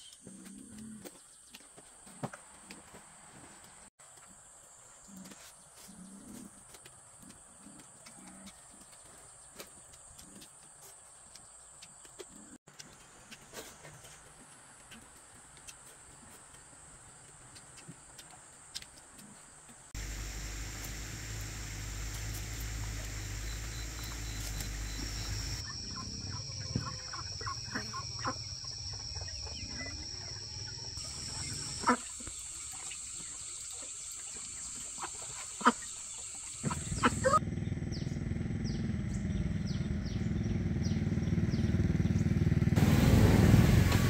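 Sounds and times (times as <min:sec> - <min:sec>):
steady high-pitched hum: 0:20.0 - 0:32.0
bird calls: 0:20.0 - 0:42.2.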